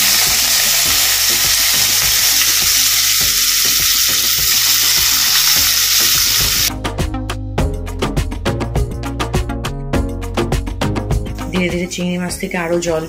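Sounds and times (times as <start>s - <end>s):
shrimp sizzling in hot oil: 0.0s - 6.7s
music with a steady beat: 0.0s - 13.0s.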